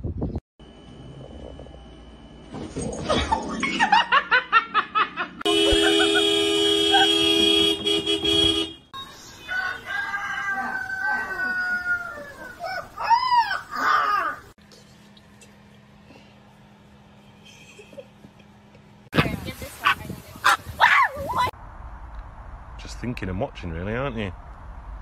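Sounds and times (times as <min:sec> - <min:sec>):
car horn blaring: 0:05.4 - 0:09.9
puppy howling: 0:10.4 - 0:14.5.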